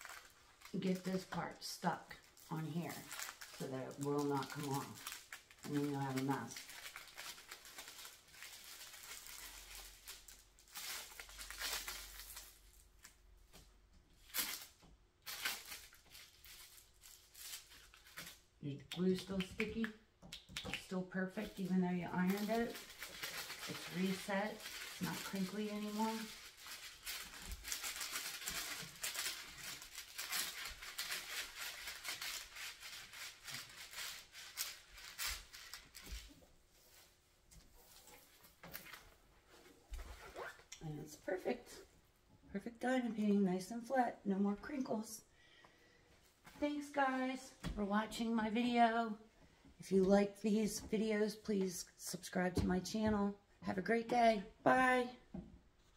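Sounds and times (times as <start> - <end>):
plastic film crinkling: 0.0 - 19.9, 20.5 - 41.7
plastic film crackles: 0.0 - 37.1, 37.8 - 39.2.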